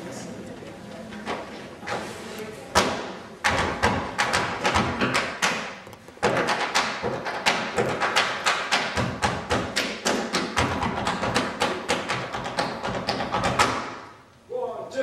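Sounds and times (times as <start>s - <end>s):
tap shoes tapping: 3.5s - 13.8s.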